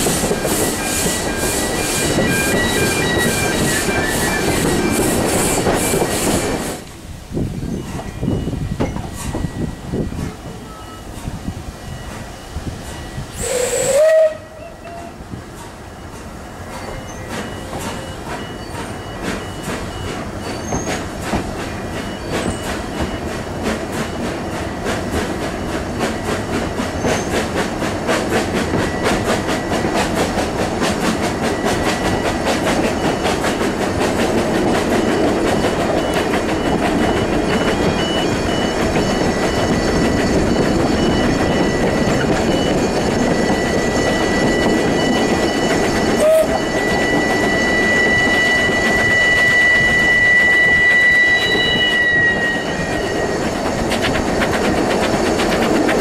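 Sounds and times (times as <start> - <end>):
train wheels clicking over rails: 0.0 - 14.4, 15.0 - 56.0
steam hiss: 0.0 - 56.0
train rumbling: 0.0 - 56.0
steam whistle blast: 0.1 - 6.6, 13.3 - 15.2, 46.2 - 53.5.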